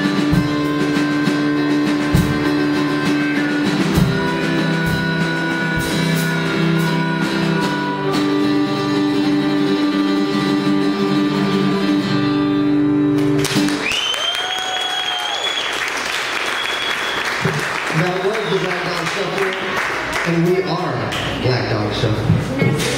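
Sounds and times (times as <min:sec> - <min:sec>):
blues harmonica: 0:00.0 - 0:13.8
guitar: 0:00.0 - 0:22.9.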